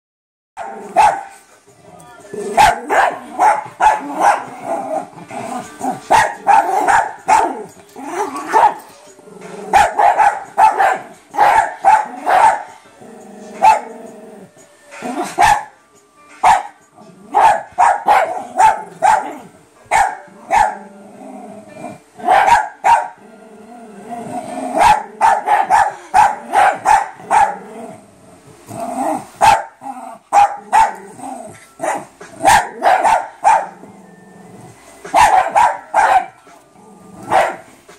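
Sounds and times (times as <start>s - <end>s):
small dogs barking: 0.6s - 1.4s, 2.5s - 4.6s, 6.0s - 8.9s, 9.7s - 12.8s, 13.6s - 14.0s, 15.2s - 15.7s, 16.4s - 20.9s, 22.2s - 23.2s, 24.7s - 27.7s, 29.4s - 31.2s, 31.8s - 33.9s, 35.1s - 36.4s, 37.2s - 37.7s
dogs growling: 1.7s - 10.0s, 11.9s - 15.4s, 17.0s - 17.5s, 20.4s - 22.3s, 23.1s - 34.8s, 36.6s - 37.6s.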